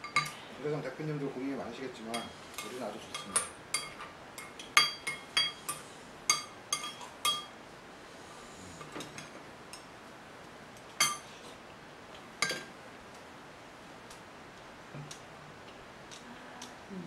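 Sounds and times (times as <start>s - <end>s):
cutlery and glasses clinking: 0.0s - 0.4s, 2.1s - 7.5s, 11.0s - 11.3s, 12.4s - 12.7s.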